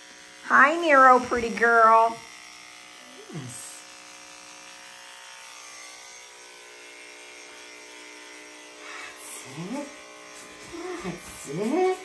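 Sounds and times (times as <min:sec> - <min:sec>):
electric clippers buzzing: 0:00.0 - 0:12.0.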